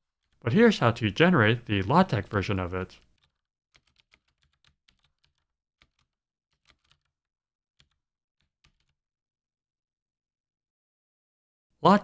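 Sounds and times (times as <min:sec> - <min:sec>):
faint keyboard typing: 0:00.0 - 0:00.4, 0:02.2 - 0:07.2, 0:07.8 - 0:09.0.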